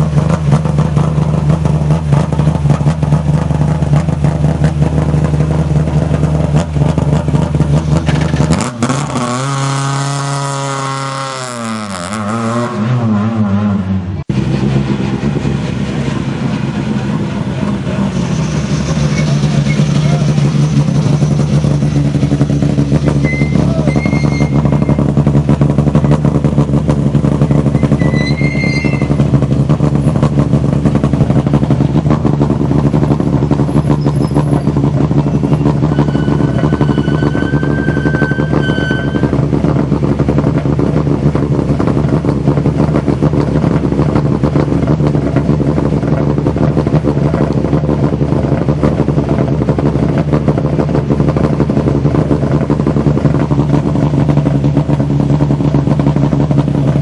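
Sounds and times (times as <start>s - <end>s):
car engines idling: 0.0s - 9.2s, 14.0s - 57.0s
short high tones: 23.1s - 25.0s, 35.8s - 39.3s.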